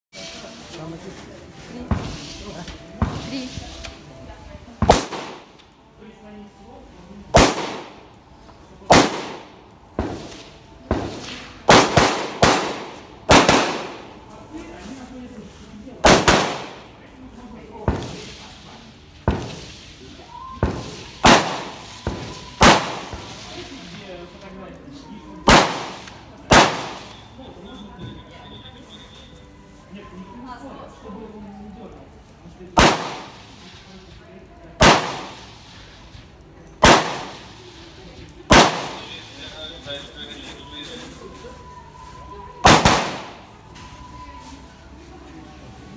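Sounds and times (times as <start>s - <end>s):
rifle shots with echo: 4.8s - 5.5s, 7.3s - 8.1s, 8.9s - 14.2s, 16.0s - 16.9s, 20.6s - 23.4s, 25.5s - 27.2s, 32.8s - 33.6s, 34.8s - 35.6s, 36.8s - 37.6s, 38.5s - 39.1s, 42.6s - 43.5s
carbine shots: 25.5s - 27.2s, 32.8s - 33.4s, 34.8s - 35.4s, 38.5s - 39.1s
faint gunshot cracks: 32.8s - 33.4s, 34.8s - 35.4s, 38.5s - 39.0s, 42.7s - 43.4s.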